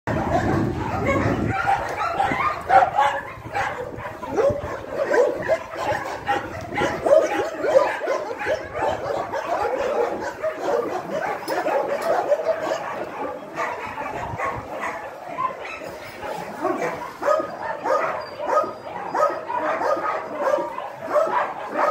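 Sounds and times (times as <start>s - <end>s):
dogs barking yipping and whining: 0.1s - 21.9s.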